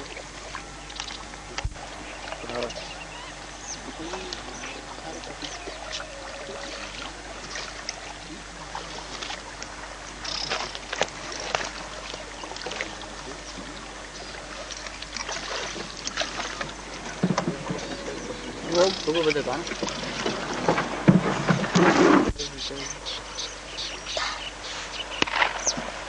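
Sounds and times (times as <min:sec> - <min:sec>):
water moving around boat hull: 0:00.0 - 0:26.0
knocks and rustles of pole and reeds: 0:03.8 - 0:22.8.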